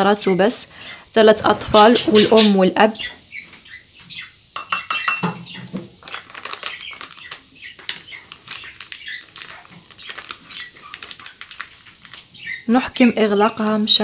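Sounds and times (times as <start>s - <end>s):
foil sachet crinkling: 5.6s - 14.0s.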